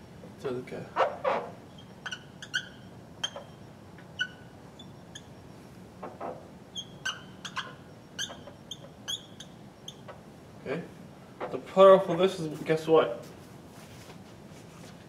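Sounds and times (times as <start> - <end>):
marker squeaking on whiteboard: 0.9 - 10.2.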